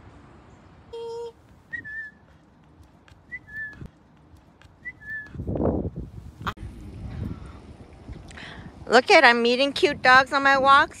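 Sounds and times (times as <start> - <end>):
faint outdoor background: 0.0 - 11.0
two-note whistle: 1.7 - 2.2.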